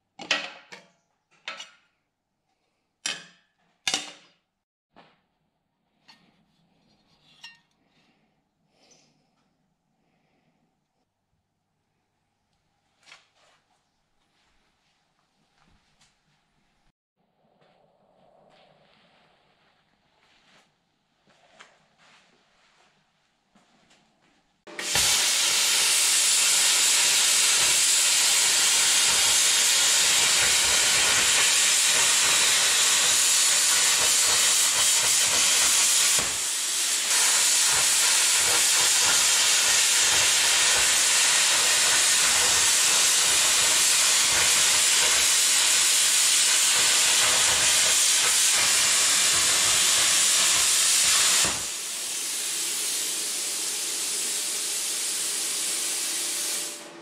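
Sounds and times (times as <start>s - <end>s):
plasma cutter hissing: 24.8s - 56.8s.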